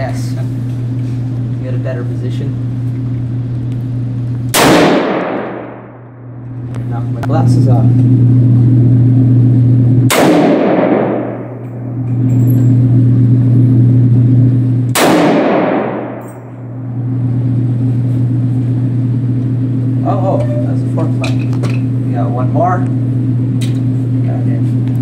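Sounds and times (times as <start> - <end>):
steady low hum: 0.0 - 25.0
rifle shots echoing: 4.5 - 6.1, 10.1 - 12.0, 14.9 - 16.3.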